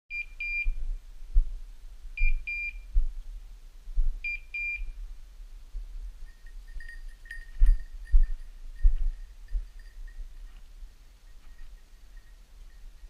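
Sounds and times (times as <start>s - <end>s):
collar high beeps: 0.1s - 0.8s, 2.2s - 2.9s, 4.2s - 4.9s.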